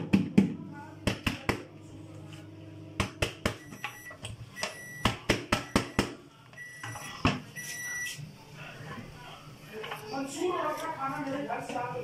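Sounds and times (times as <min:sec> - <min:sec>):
short high-pitched beeps: 0:06.6 - 0:08.2.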